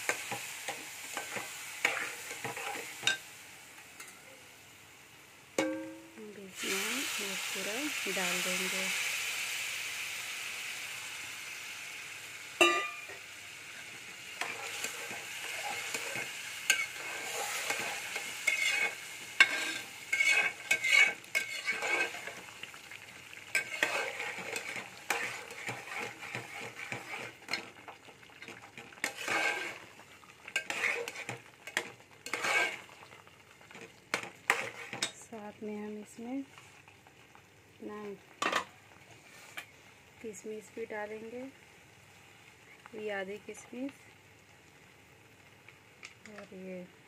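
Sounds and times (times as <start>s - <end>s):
food sizzling: 0.0s - 47.0s
spatula scraping metal pot: 1.1s - 3.2s, 14.4s - 22.4s, 23.5s - 27.7s, 28.5s - 29.8s, 30.5s - 32.9s, 34.2s - 35.1s
metal clink on pot: 5.6s - 6.2s, 12.6s - 13.2s.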